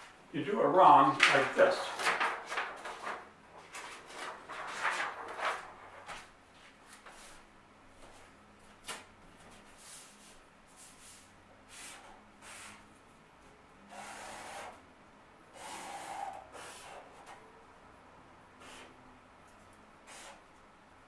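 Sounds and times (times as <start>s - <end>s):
paper rustling: 1.1s - 7.4s
marker scratching on paper: 15.6s - 17.2s.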